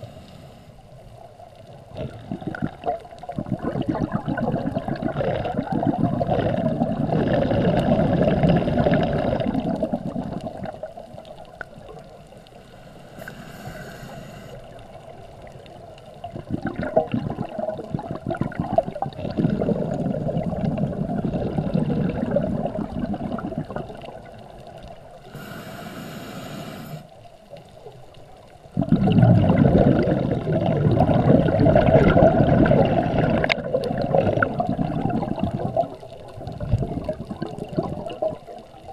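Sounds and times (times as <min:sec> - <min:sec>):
regulator inhalation hiss: 0:00.0 - 0:00.8, 0:12.6 - 0:14.8, 0:25.2 - 0:27.1
exhaled bubbles rushing: 0:01.9 - 0:12.3, 0:14.9 - 0:25.0, 0:28.7 - 0:38.9.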